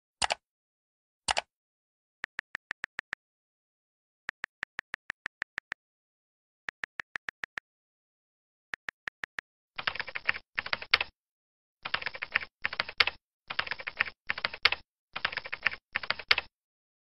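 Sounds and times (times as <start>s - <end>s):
typing on computer keyboard: 0.2s - 0.4s, 1.3s - 1.5s, 9.8s - 11.1s, 11.8s - 16.5s.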